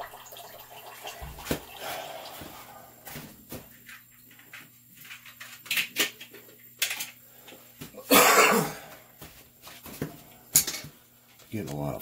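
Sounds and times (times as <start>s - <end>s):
loud cough: 8.0s - 8.9s.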